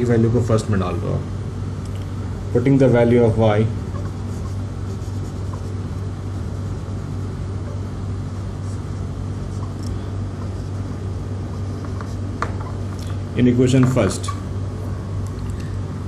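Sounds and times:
low background hum: 0:00.0 - 0:16.0
marker scratching on whiteboard: 0:03.9 - 0:07.8, 0:08.4 - 0:09.8, 0:10.4 - 0:12.8.

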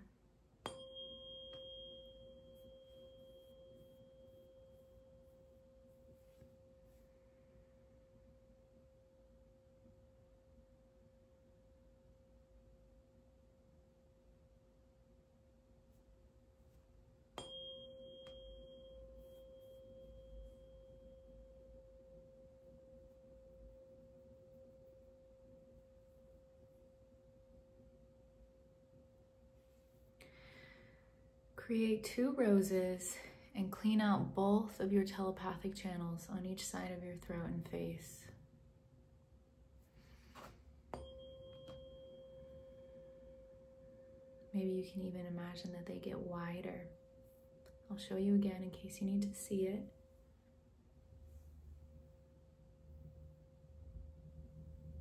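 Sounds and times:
tuning fork ringing: 0:00.6 - 0:10.3, 0:17.3 - 0:31.4, 0:40.9 - 0:44.6.

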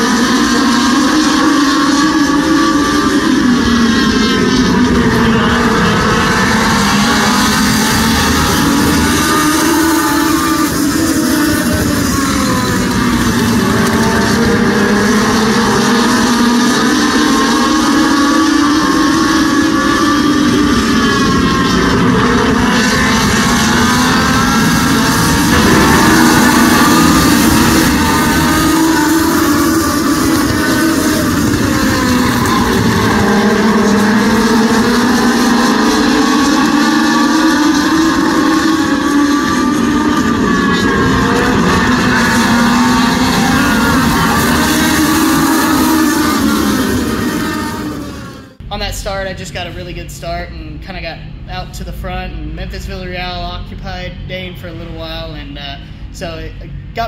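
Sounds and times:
race car engines droning: 0:00.0 - 0:57.0.

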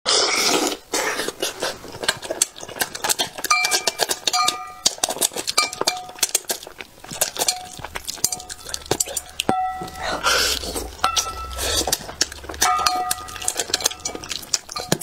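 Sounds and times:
slurping: 0:00.1 - 0:15.0
wet chewing with smacks: 0:00.1 - 0:15.0
chopsticks ringing on brass bowl: 0:09.5 - 0:10.3, 0:11.0 - 0:11.9, 0:12.6 - 0:14.2.

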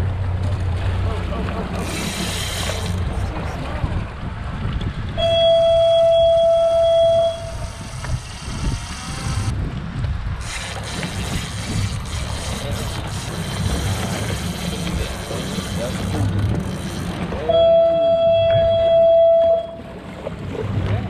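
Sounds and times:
boat motor rumble: 0:00.0 - 0:21.0
wind over water: 0:00.0 - 0:21.0.

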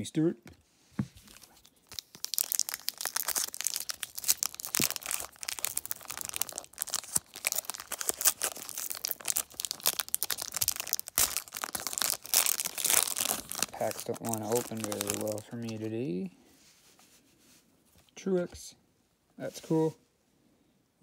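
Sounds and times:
foil wrapper crinkling: 0:01.2 - 0:15.9.

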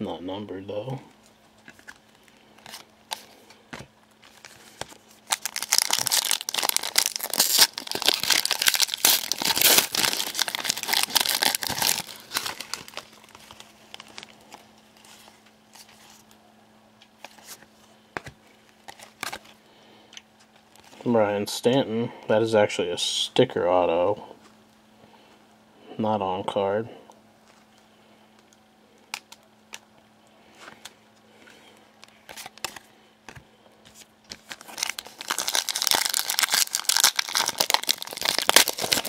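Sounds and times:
foil wrapper tearing and crinkling: 0:04.2 - 0:15.9, 0:34.3 - 0:39.0.

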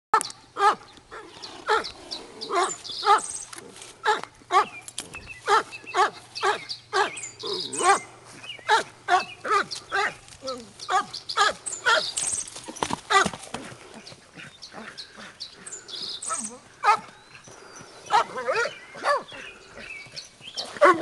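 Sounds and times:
dog barking: 0:05.5 - 0:07.2, 0:16.8 - 0:17.1, 0:18.1 - 0:19.3, 0:20.7 - 0:21.0.

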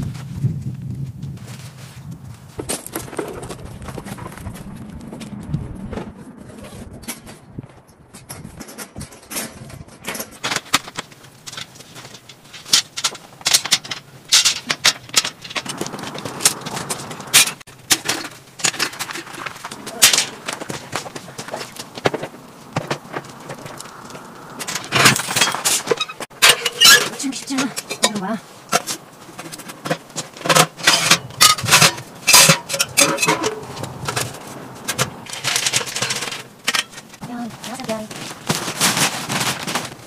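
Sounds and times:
camping gear rustling and clattering: 0:00.0 - 0:40.0
footsteps crunching on gravel: 0:37.0 - 0:40.0.

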